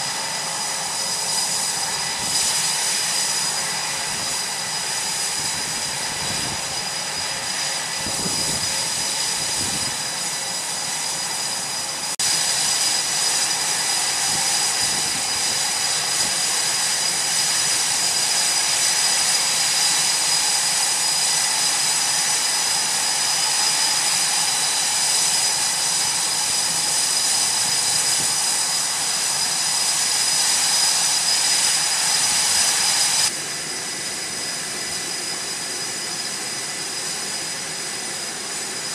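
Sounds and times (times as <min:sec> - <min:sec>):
jet engines running: 0:00.0 - 0:38.9.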